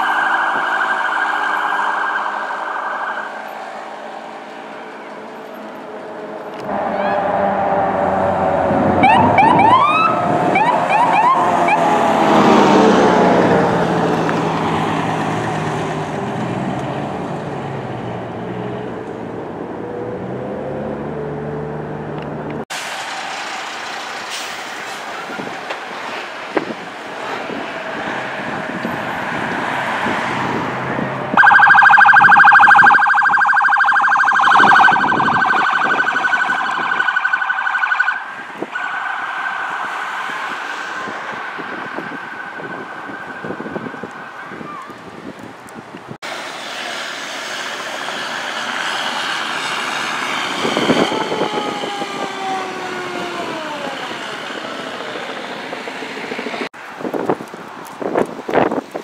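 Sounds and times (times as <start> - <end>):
siren warbling: 0.0 - 3.7, 6.7 - 13.0, 31.3 - 44.9, 50.5 - 55.4
road traffic passing: 0.0 - 59.0.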